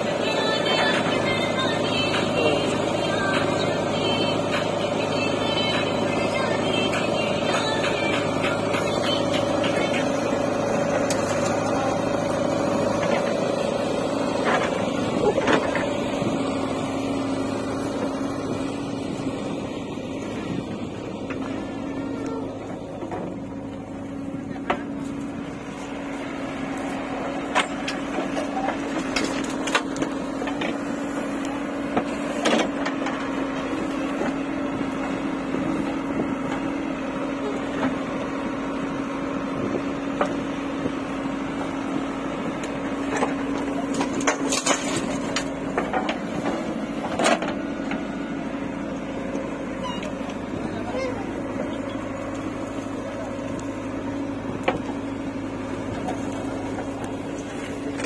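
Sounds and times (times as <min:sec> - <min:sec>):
diesel engine humming: 0:00.0 - 0:58.0
knocks and crunches of stones: 0:43.0 - 0:48.0.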